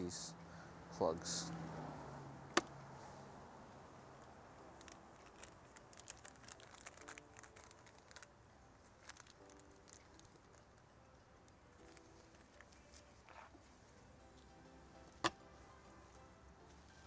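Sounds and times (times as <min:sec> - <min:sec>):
light ticks and crinkles: 0:04.2 - 0:14.5.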